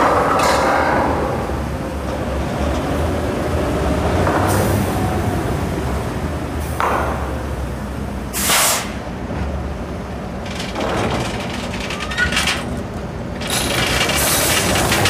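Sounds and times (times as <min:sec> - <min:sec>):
brief hisses: 0:08.4 - 0:09.0
vehicle engine rumble: 0:08.9 - 0:15.0.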